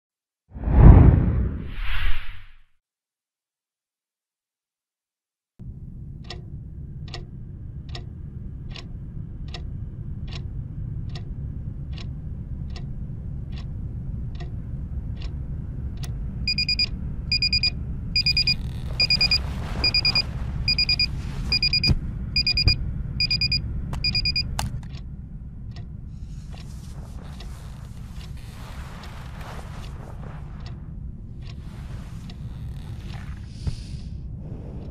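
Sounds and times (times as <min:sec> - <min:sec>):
low steady hum: 0:05.6 - 0:34.9
alarm clock ticking: 0:16.0 - 0:26.0
alarm clock beeping: 0:16.5 - 0:24.5
alarm switch click: 0:16.5 - 0:24.8.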